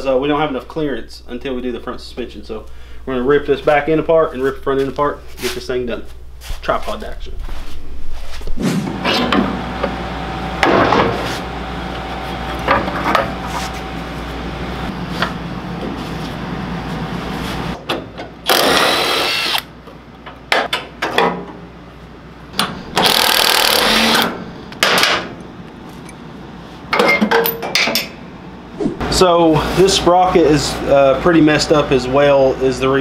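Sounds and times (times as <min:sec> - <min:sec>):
cordless power tool spinning: 0:18.5 - 0:19.7, 0:23.0 - 0:24.3.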